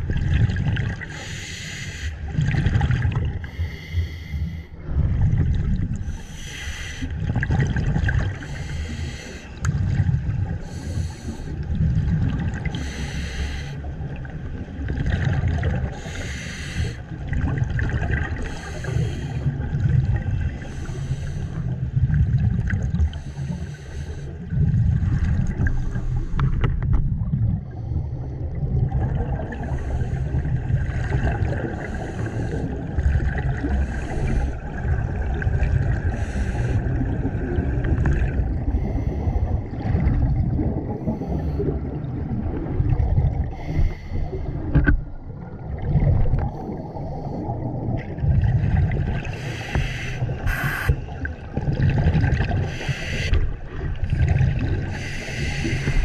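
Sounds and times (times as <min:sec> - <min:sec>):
exhaled bubbles rumbling: 0:00.0 - 0:03.8, 0:04.5 - 0:56.0
regulator breathing hiss: 0:01.2 - 0:02.2, 0:06.1 - 0:07.1, 0:12.8 - 0:13.8, 0:16.0 - 0:17.0, 0:49.4 - 0:51.0, 0:52.7 - 0:53.4, 0:54.9 - 0:56.0.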